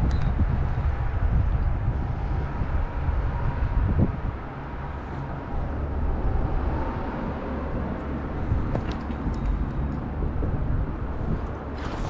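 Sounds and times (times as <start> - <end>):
wind buffeting microphone: 0.0 - 12.0
river water flowing: 11.1 - 12.0.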